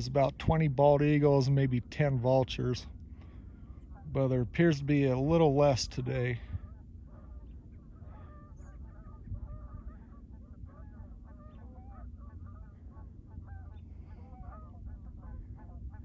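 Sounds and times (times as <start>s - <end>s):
low steady rumble: 0.0s - 16.0s
geese honking: 3.6s - 16.0s.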